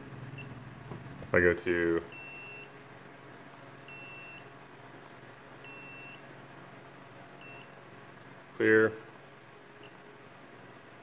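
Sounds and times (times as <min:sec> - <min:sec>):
short high-pitched beeps: 0:02.2 - 0:02.7, 0:03.9 - 0:04.4, 0:05.7 - 0:06.2.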